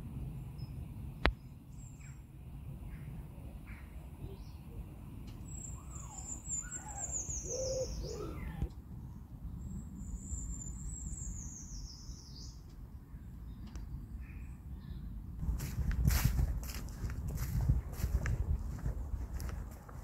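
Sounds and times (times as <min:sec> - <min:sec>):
songbird singing: 0:00.4 - 0:15.7
low steady rumble: 0:12.8 - 0:20.0.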